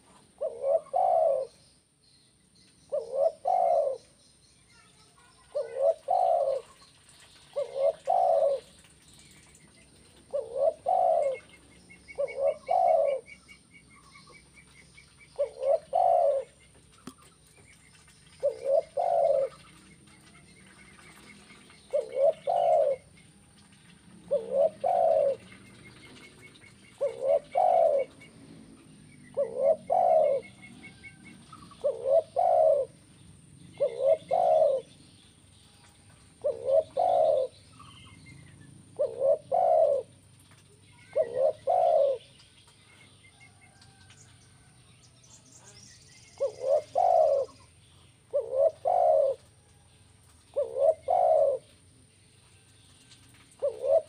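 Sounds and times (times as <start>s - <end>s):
dove cooing: 0.0s - 1.6s, 2.9s - 4.2s, 5.4s - 6.8s, 7.4s - 8.8s, 10.0s - 13.4s, 15.4s - 17.3s, 18.3s - 19.6s, 21.0s - 23.1s, 24.0s - 33.0s, 33.7s - 34.9s, 36.3s - 38.0s, 38.9s - 40.1s, 41.0s - 42.3s, 46.3s - 49.6s, 50.5s - 51.8s, 53.5s - 54.0s
small birds chirping: 0.0s - 54.0s.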